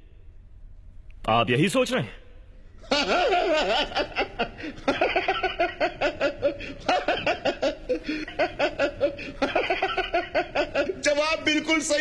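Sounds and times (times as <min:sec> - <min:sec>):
man chuckling: 0:02.8 - 0:11.1.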